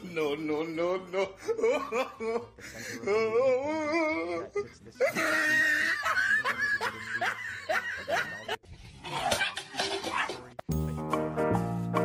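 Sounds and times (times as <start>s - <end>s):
people laughing: 1.1s - 8.6s.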